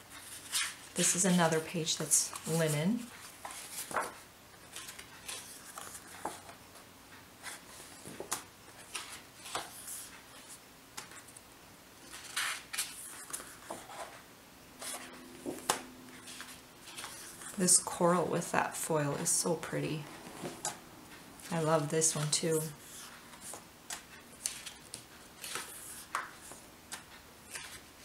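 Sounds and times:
paper sheets rustling: 0.1 - 6.6, 7.4 - 11.4, 12.0 - 14.2, 14.8 - 17.6, 21.4 - 28.0.

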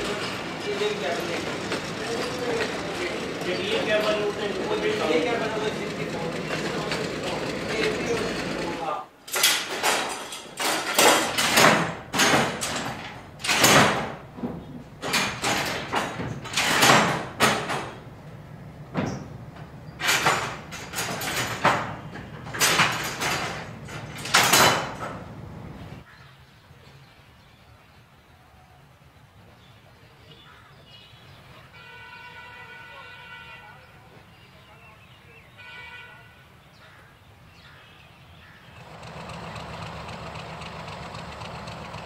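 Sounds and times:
signal levers clanking and rattling: 0.0 - 26.0.

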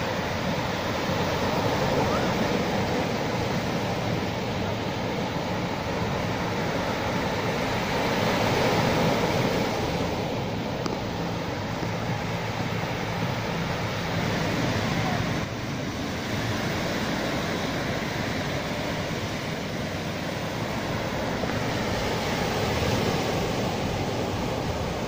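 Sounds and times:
waves breaking on beach: 0.0 - 25.0.

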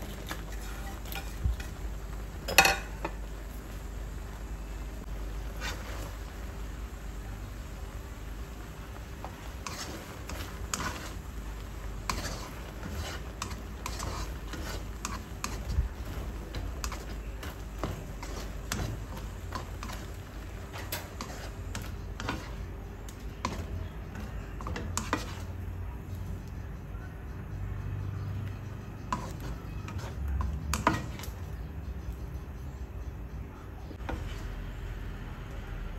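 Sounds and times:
utensils scraping a wok: 0.0 - 4.4, 5.1 - 6.8, 8.8 - 26.4, 28.1 - 32.8, 33.9 - 35.2.

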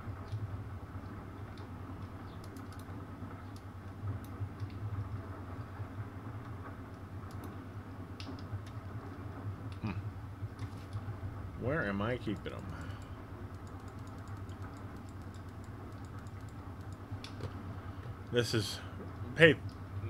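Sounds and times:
low hum: 0.0 - 20.0
computer keyboard clicks: 1.5 - 2.9, 12.3 - 17.5.

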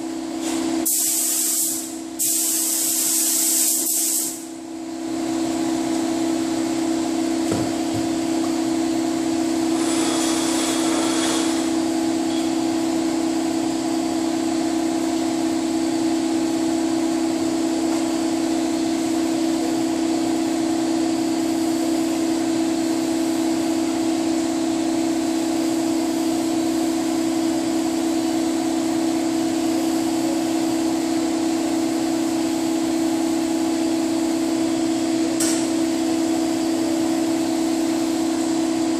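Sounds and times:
ventilation fan humming: 0.0 - 38.9
spray gun hiss: 0.4 - 4.5, 9.7 - 11.8.

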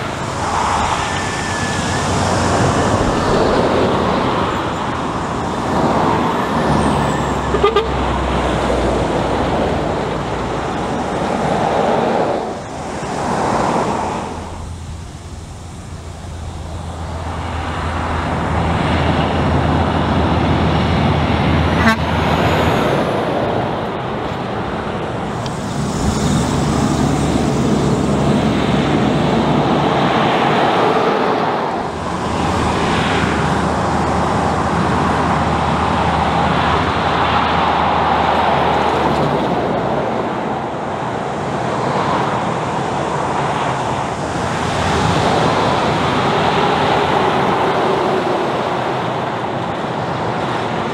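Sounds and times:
diesel trucks passing: 0.0 - 50.9
tyre noise on road: 0.0 - 50.9.

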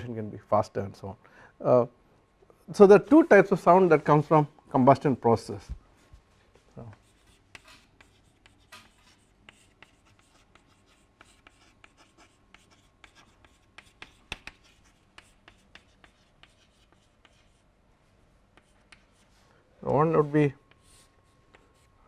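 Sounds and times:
chalk tapping and scraping: 5.5 - 17.7, 18.5 - 22.0.

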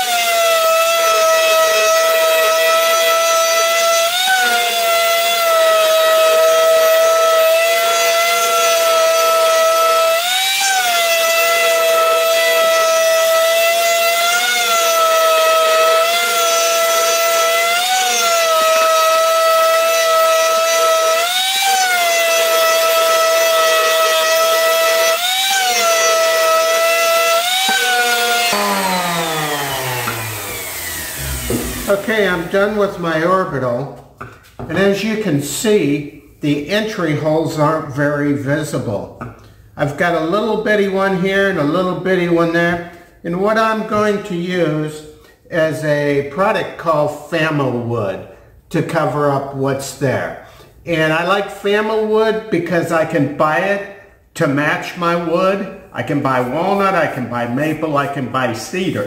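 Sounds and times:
electric sander whining on wood: 0.0 - 33.0.

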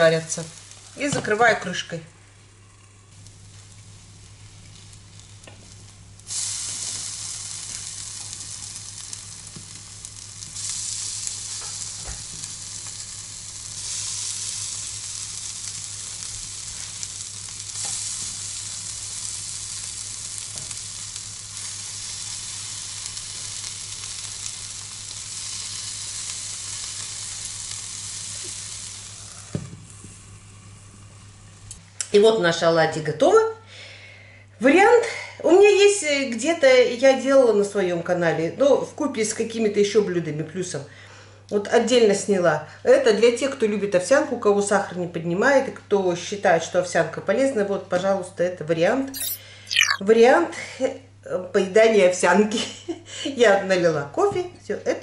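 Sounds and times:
fritters sizzling in a pan: 2.5 - 31.8.

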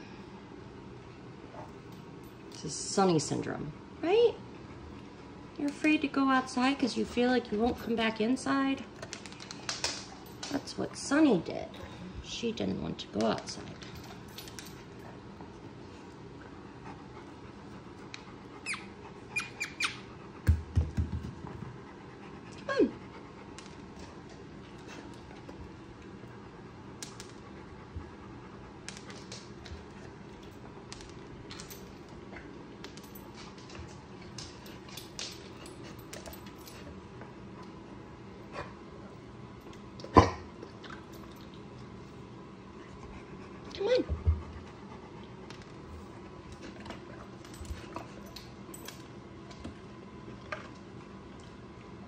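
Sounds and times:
low room noise: 0.0 - 52.0
dog clicks and ticks: 9.0 - 10.7, 27.0 - 27.5, 28.8 - 36.9.

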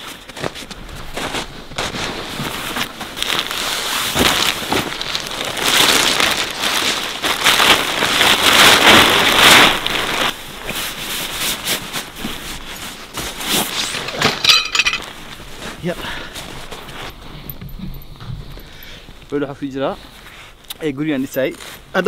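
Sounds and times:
sleeping bag shaken open: 0.0 - 17.1
fabric rustling: 0.0 - 22.0.

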